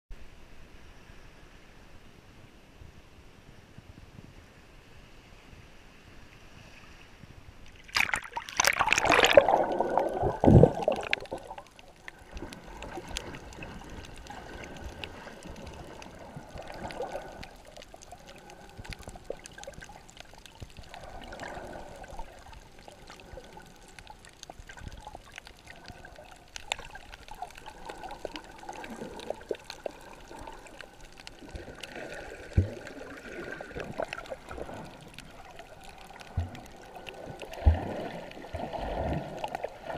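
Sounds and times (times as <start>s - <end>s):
loud water splash: 7.8s - 11.6s
muffled underwater gurgling: 8.6s - 39.9s.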